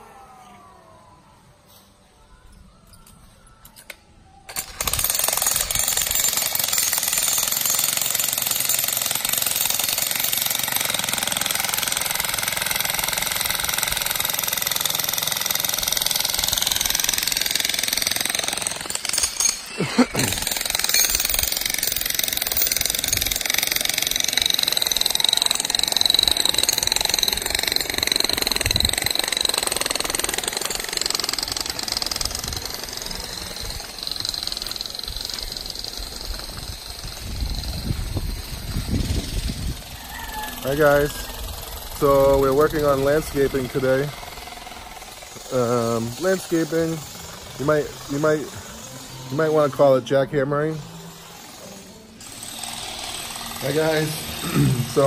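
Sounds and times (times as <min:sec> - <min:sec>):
jackhammer breaking rocky ground: 0:04.5 - 0:39.8.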